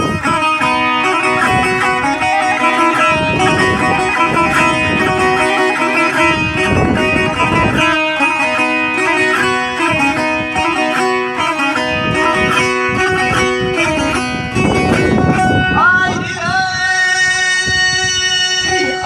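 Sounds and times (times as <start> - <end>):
person singing: 0.0 - 9.9, 14.9 - 19.0
plucked lute melody: 0.0 - 19.0.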